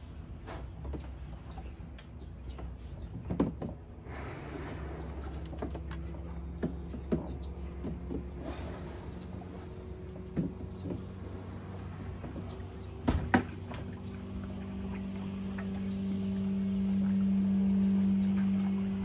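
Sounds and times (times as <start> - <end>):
motor drone: 7.4 - 19.0.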